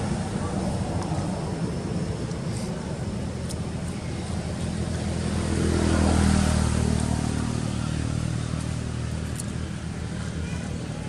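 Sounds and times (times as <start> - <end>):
vehicle engine passing by: 0.0 - 11.0.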